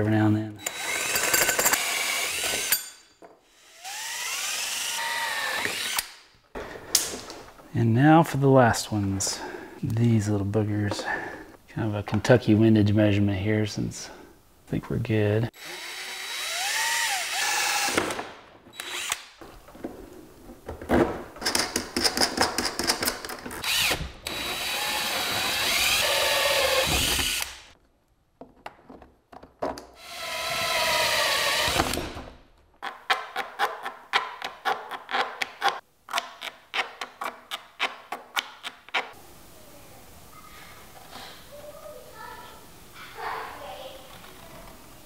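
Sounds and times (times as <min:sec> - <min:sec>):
cordless drill with hole saw: 0:00.6 - 0:06.2, 0:15.6 - 0:18.1, 0:18.8 - 0:19.3, 0:23.6 - 0:27.7, 0:30.0 - 0:32.2.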